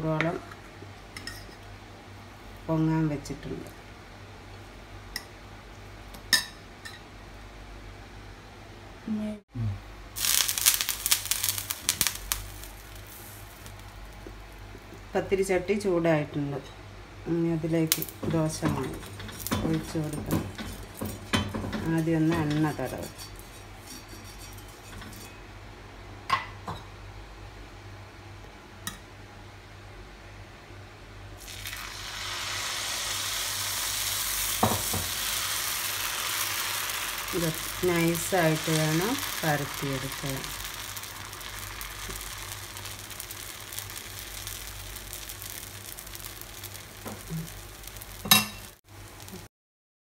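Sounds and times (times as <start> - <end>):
batter sizzling on hot pan: 10.1 - 15.1, 17.8 - 25.4, 31.4 - 49.5.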